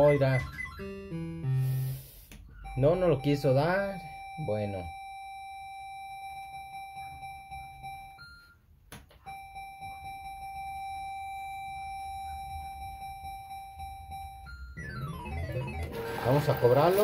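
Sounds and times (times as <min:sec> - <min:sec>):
high electronic tone: 0:09.8 - 0:17.0.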